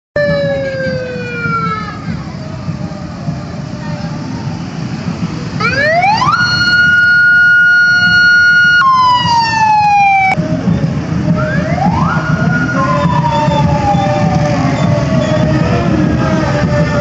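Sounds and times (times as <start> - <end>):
siren wailing: 0.2 - 2.8, 5.6 - 17.0
motorcycle engines running: 10.4 - 17.0.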